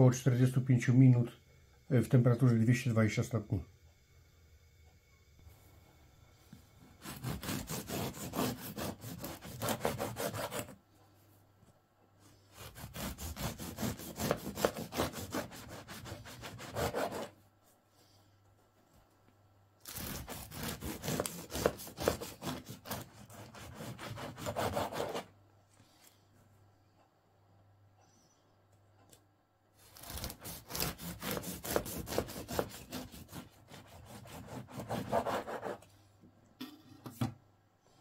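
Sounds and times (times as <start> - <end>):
knife sawing through bread crust: 7.0 - 10.8, 12.5 - 17.4, 19.8 - 25.3, 29.8 - 35.9.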